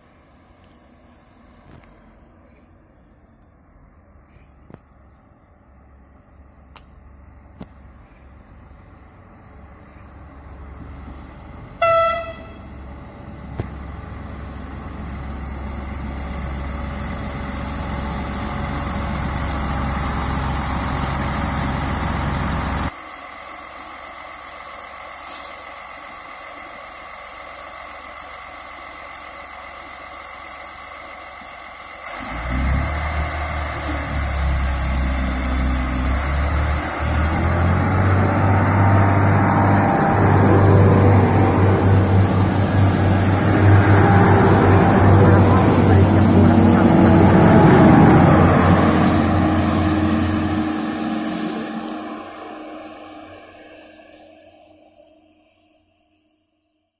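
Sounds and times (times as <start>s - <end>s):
train engine and wheels: 0.0s - 56.9s
train horn blast: 11.8s - 12.7s, 38.3s - 54.0s.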